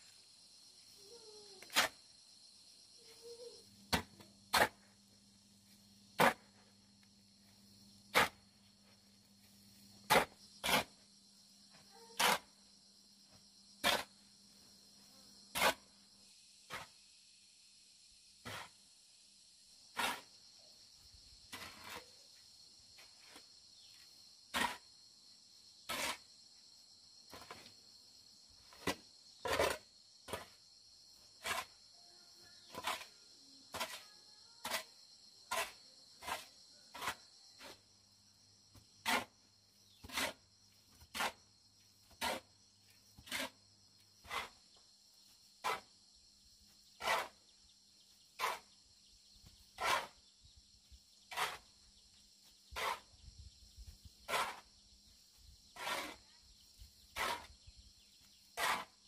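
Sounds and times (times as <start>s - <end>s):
insects chirring: 0.0s - 59.0s
shovel scraping sand and gravel: 1.6s - 2.0s, 3.9s - 5.0s, 5.6s - 6.7s, 8.1s - 8.6s, 9.4s - 11.0s, 12.0s - 12.6s, 13.8s - 14.3s, 15.5s - 16.0s, 16.7s - 17.0s, 18.4s - 18.8s, 19.9s - 20.4s, 21.5s - 22.3s, 23.0s - 24.9s, 25.9s - 26.3s, 27.3s - 27.7s, 28.7s - 30.6s, 31.2s - 31.8s, 32.6s - 37.9s, 38.7s - 46.0s, 46.6s - 50.3s, 51.2s - 53.2s, 53.8s - 57.6s, 58.2s - 59.0s.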